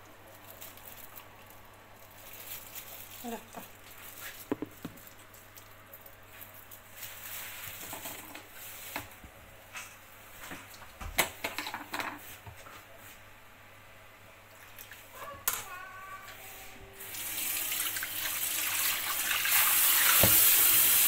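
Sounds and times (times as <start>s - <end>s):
faint crackle: 0.0s - 7.8s.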